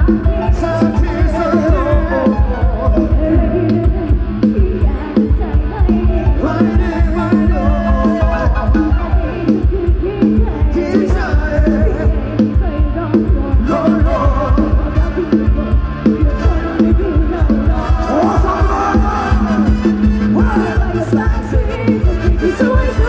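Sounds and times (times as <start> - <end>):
loud dance music with singing: 10.6 - 23.0.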